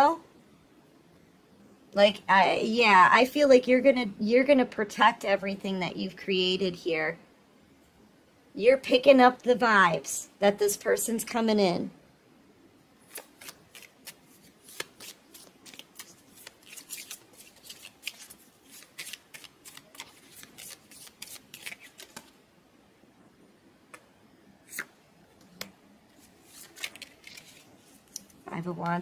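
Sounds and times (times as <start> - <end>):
cards being shuffled: 13.0 - 22.4, 25.5 - 28.4
cards tapping: 13.1 - 22.3.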